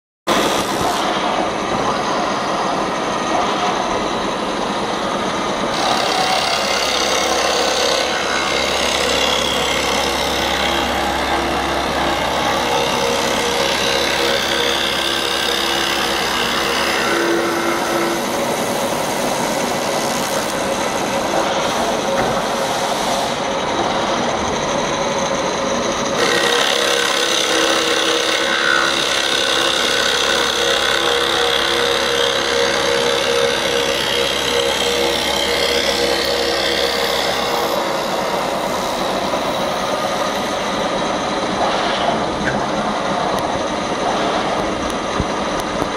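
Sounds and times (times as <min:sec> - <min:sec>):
cutter bit machining wood: 0:00.3 - 0:45.9.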